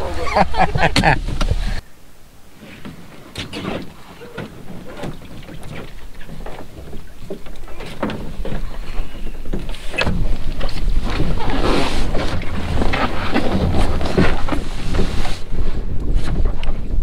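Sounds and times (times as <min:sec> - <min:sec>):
knocks and scrapes on wooden dock: 0:02.6 - 0:17.0.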